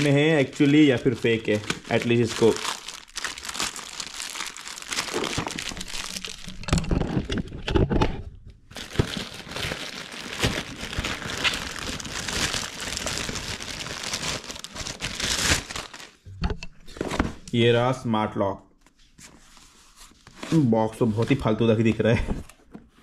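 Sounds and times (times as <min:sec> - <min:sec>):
plastic bag crinkling: 0:00.0 - 0:07.4, 0:08.7 - 0:16.2.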